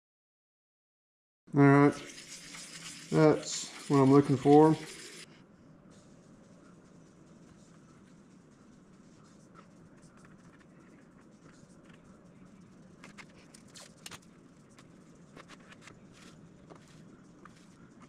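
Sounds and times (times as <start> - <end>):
low steady hum: 1.5 - 18.0
masking tape crackling: 5.9 - 18.0.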